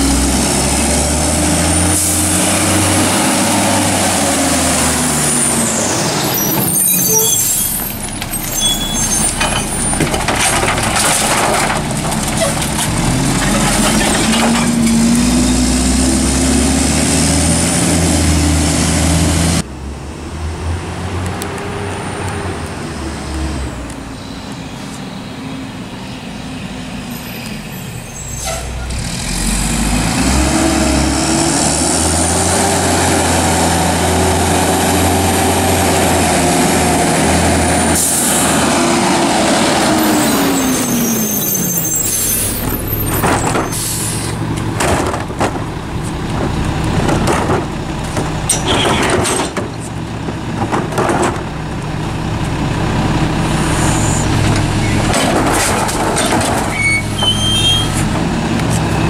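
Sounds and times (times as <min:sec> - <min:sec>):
diesel truck engine revving: 0:00.0 - 0:23.6, 0:28.7 - 0:49.0, 0:49.6 - 0:59.0
air brakes hissing: 0:43.6 - 0:44.4.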